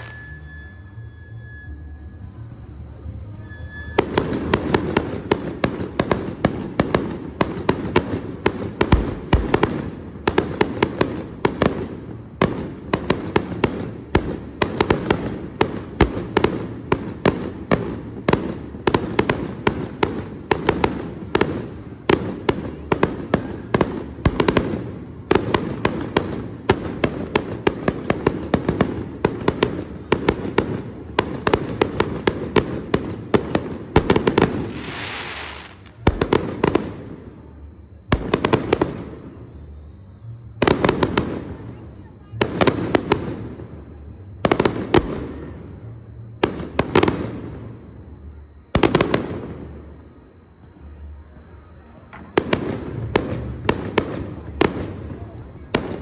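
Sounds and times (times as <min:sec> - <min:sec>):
fireworks bangs and pops: 0:00.0 - 0:00.6, 0:03.4 - 0:37.2, 0:38.0 - 0:39.3, 0:40.6 - 0:43.6, 0:44.4 - 0:45.6, 0:46.3 - 0:47.7, 0:48.7 - 0:50.0, 0:51.9 - 0:56.0
firework hiss: 0:34.4 - 0:36.2.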